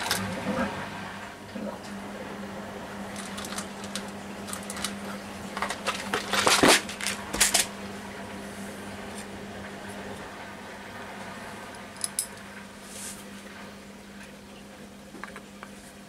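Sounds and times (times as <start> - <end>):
steady low hum: 0.0 - 16.0
small objects clicking and rattling: 3.1 - 5.0
objects clattering: 3.1 - 7.7.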